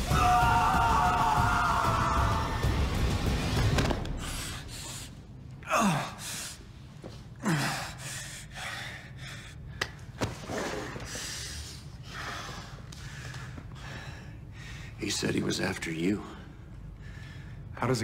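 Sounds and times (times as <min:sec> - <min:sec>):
man breathing hard: 0:04.2 - 0:06.8, 0:07.4 - 0:10.2, 0:11.0 - 0:15.0, 0:16.4 - 0:17.7.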